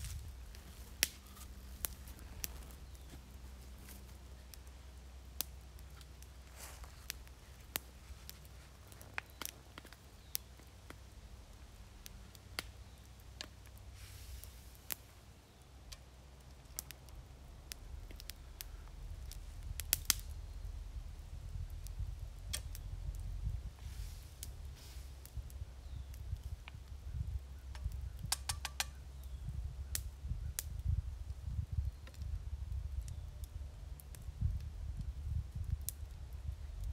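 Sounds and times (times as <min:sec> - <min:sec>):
campfire crackling and popping: 0:00.0 - 0:36.9.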